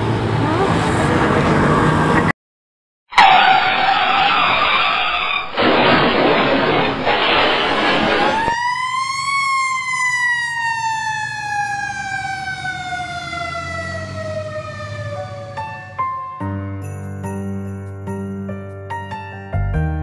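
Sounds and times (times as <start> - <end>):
siren wail: 3.1 - 5.6, 6.7 - 16.3
harsh rush of crash noise: 3.2 - 8.5.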